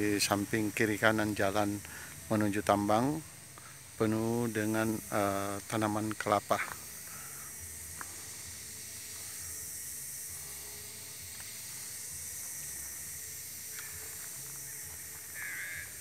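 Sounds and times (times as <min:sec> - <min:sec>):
high even hiss: 0:00.0 - 0:16.0
faint ticks: 0:01.2 - 0:02.3, 0:03.5 - 0:03.8, 0:06.0 - 0:08.3, 0:11.2 - 0:16.0.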